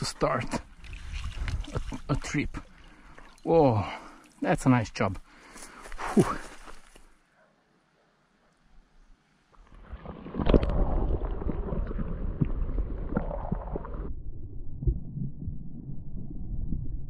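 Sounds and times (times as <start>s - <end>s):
muffled underwater water sloshing: 0.3s - 3.5s
low underwater rumble: 9.7s - 17.0s.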